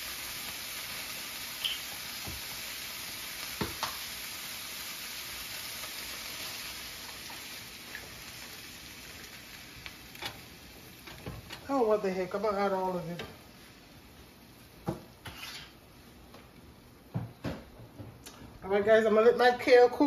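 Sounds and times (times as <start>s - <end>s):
greens sizzling in a skillet: 0.0s - 16.7s.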